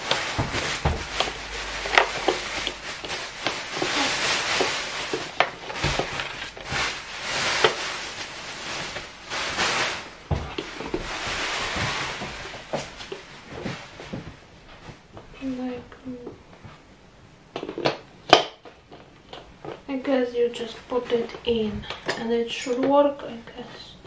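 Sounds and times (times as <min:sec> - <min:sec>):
rustling: 0:00.0 - 0:15.9.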